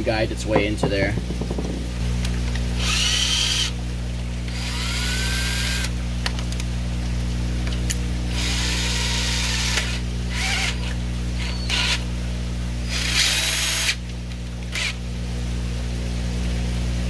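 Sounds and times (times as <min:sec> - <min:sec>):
steady low hum: 0:00.0 - 0:17.0
cordless drill spinning: 0:02.5 - 0:03.8, 0:04.5 - 0:06.0, 0:08.3 - 0:12.1, 0:12.8 - 0:14.0, 0:14.7 - 0:15.0.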